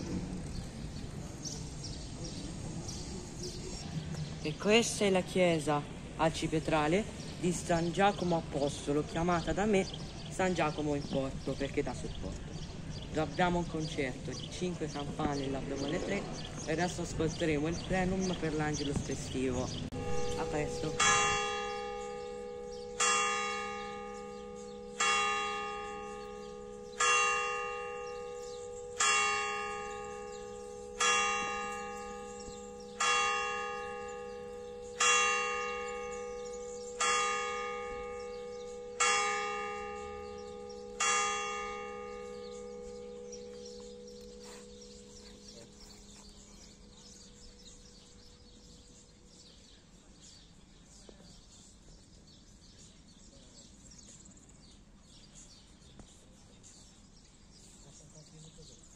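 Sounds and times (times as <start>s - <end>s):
church bell tolling: 15.1s - 49.6s.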